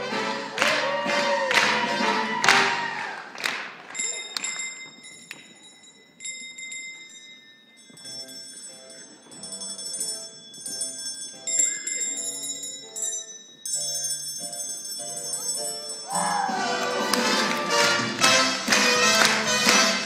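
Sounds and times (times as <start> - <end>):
bell tune: 4.0 - 18.4
bell notes ringing: 4.0 - 19.7.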